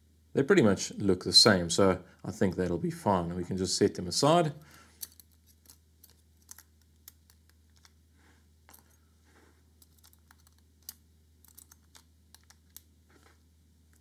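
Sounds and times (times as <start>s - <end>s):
small metal parts clicking: 4.7s - 8.0s, 8.7s - 9.0s, 9.8s - 12.9s.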